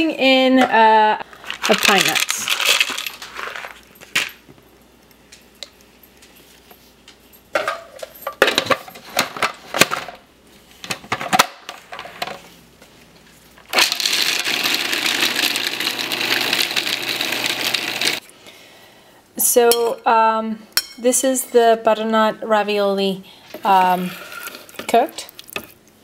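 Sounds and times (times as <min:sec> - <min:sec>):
food processor motor running: 0:13.7 - 0:18.2.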